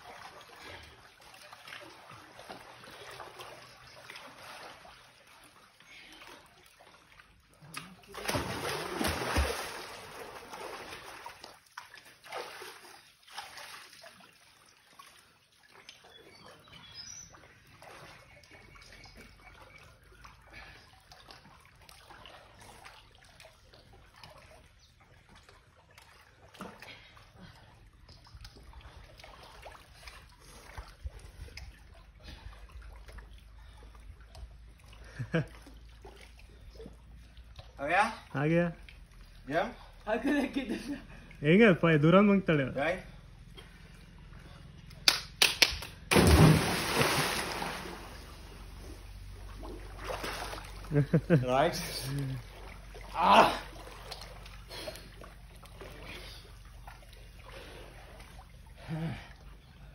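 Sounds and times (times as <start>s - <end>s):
water splashing and sloshing: 0.0s - 59.9s
loud splash: 8.1s - 11.3s, 46.1s - 48.8s.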